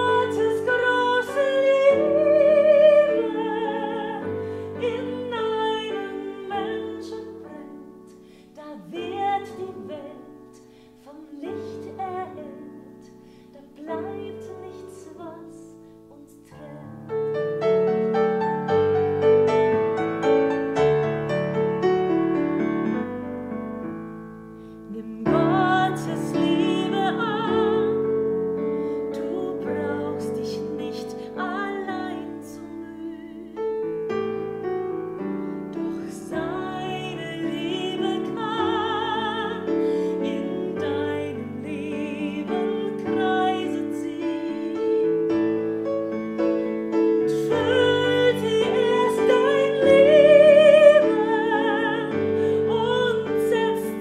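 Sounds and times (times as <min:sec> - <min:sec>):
woman singing with vibrato: 0:00.0 - 0:17.2, 0:24.9 - 0:28.2, 0:29.0 - 0:33.8, 0:35.7 - 0:45.7, 0:46.9 - 0:54.0
digital piano chords: 0:00.0 - 0:54.0.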